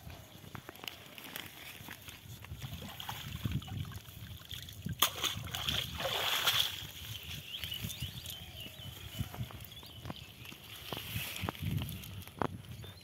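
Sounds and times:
water sloshing and dripping: 1.3 - 7.3
water splashing: 2.6 - 7.1.

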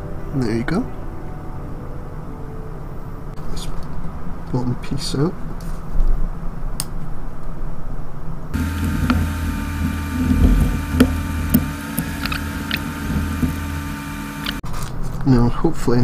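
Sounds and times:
steady hum: 8.5 - 14.6.

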